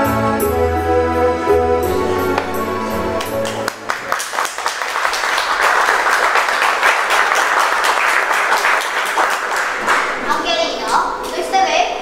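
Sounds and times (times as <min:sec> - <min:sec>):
audience applauding: 0:02.3 - 0:11.4.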